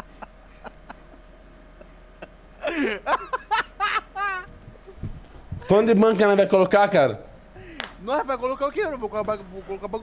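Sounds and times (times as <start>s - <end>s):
man laughing: 0.0s - 1.2s, 1.8s - 6.0s.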